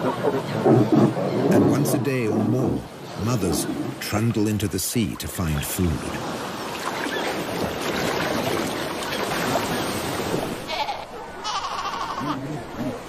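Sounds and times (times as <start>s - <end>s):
surf washing onto beach: 0.0s - 10.9s
seal pup crying: 10.7s - 12.5s.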